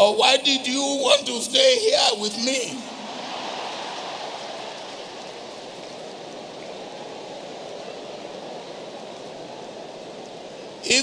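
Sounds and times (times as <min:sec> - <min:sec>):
audience laughing and clapping: 0:02.8 - 0:07.2.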